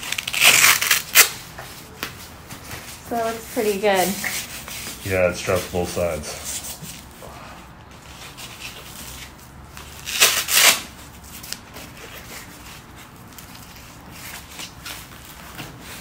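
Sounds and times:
strap rasps: 0.0 - 1.4, 8.1 - 12.5
straps and fabric rustling: 0.0 - 16.0.

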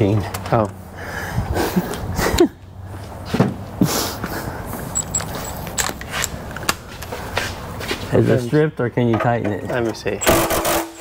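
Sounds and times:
hand tools clicking and knocking: 4.9 - 7.2.

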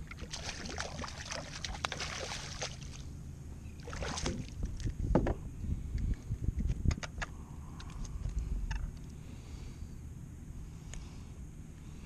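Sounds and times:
fish splashing in water: 0.0 - 3.1, 3.8 - 4.6.

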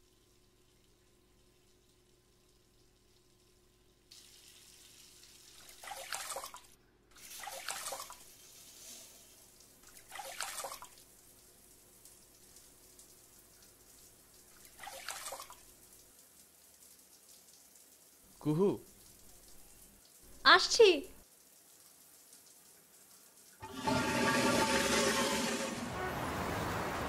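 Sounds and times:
water splashing in basin: 4.2 - 8.3, 9.8 - 11.0, 14.5 - 15.7.

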